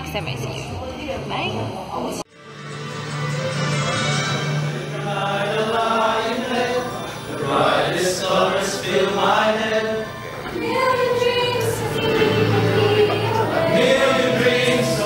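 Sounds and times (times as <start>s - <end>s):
mixed choir singing: 4.3s - 15.0s.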